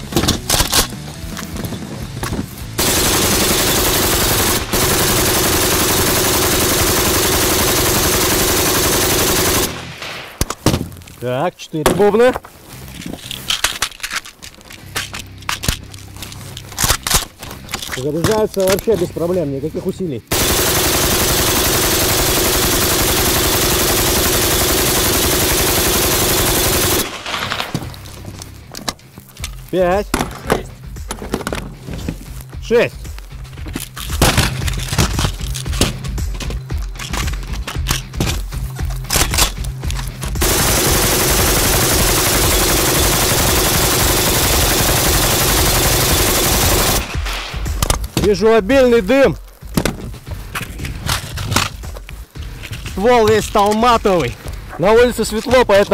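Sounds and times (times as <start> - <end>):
machine gun automatic fire: 2.8 - 10.2, 20.3 - 27.7, 40.4 - 47.4.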